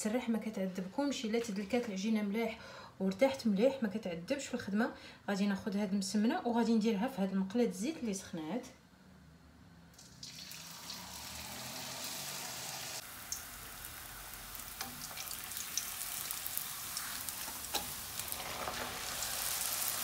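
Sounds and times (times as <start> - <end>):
dough sizzling in hot oil: 10.0 - 20.0.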